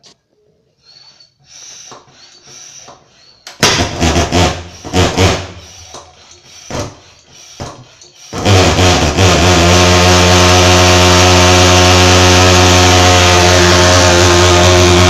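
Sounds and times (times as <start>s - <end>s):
hand pump strokes: 0.9s - 15.0s
pulse-jet engine running roughly: 8.3s - 15.0s.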